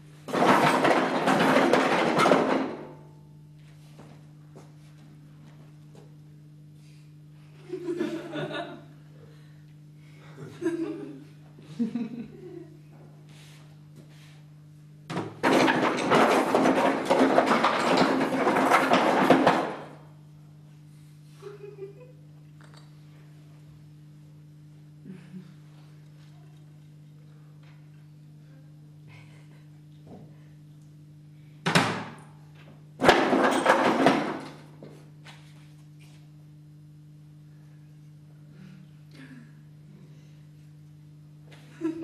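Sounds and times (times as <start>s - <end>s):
objects clattering in a box: 0.3s - 2.8s, 15.4s - 20.0s.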